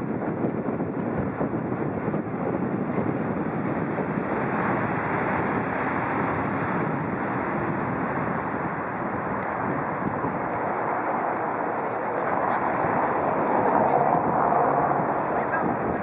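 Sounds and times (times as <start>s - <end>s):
wind buffeting microphone: 0.0s - 16.0s
river water rushing: 4.2s - 16.0s.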